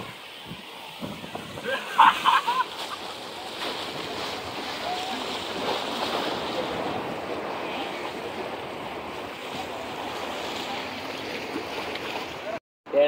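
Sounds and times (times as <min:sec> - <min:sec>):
surf breaking on rocks: 0:00.0 - 0:12.6
wind: 0:00.0 - 0:13.0.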